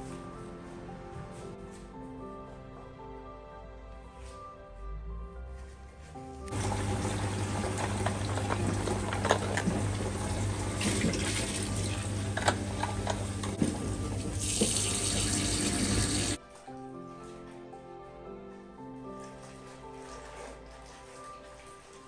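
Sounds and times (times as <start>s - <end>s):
tap water running into bucket: 6.5s - 16.4s.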